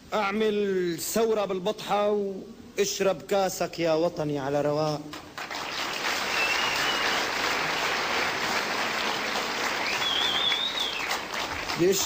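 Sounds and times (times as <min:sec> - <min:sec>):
crowd clapping: 0:05.1 - 0:12.0
high whistles: 0:06.2 - 0:07.4, 0:09.0 - 0:11.2.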